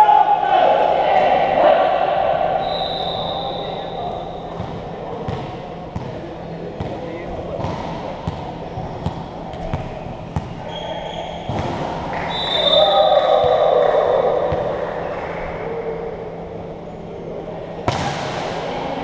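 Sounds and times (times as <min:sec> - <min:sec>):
players shouting: 0:00.0 - 0:04.5, 0:12.1 - 0:16.4
referee's whistle: 0:02.6 - 0:04.4, 0:12.2 - 0:13.7
volleyball hits: 0:04.6 - 0:10.6, 0:11.3 - 0:13.6, 0:17.8 - 0:18.8.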